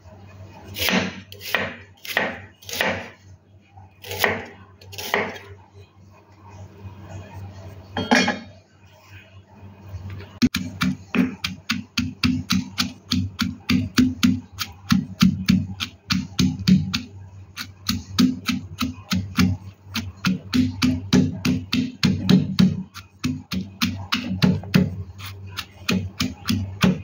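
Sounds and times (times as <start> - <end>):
stone pestle pounding in mortar: 10.5 - 27.0.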